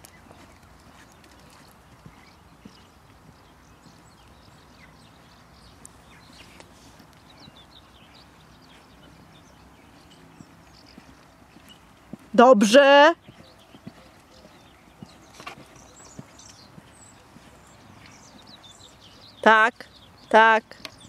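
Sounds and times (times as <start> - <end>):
horse hoofbeats on sand: 0.0 - 5.4, 8.2 - 19.4.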